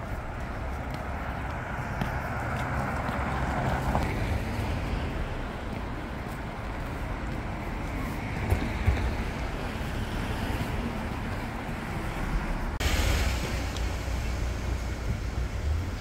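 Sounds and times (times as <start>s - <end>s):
city street traffic: 0.0s - 16.0s
car passing by: 7.3s - 16.0s.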